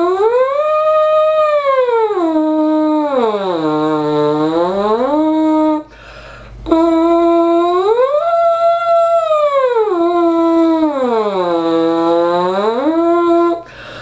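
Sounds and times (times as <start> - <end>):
horn mouthpiece buzzing: 0.0 - 14.0
quick breath: 5.9 - 6.6, 13.6 - 14.0.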